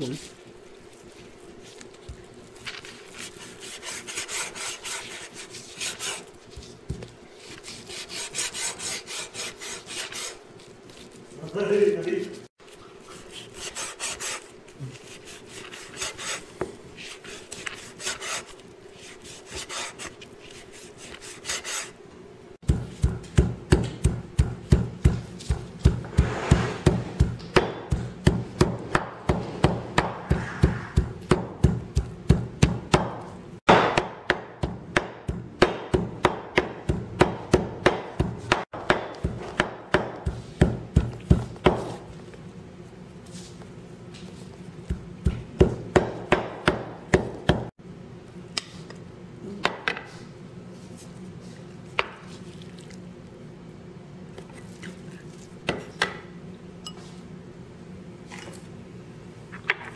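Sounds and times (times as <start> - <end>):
cleaver chopping on wooden board: 22.7 - 42.0, 44.9 - 47.7.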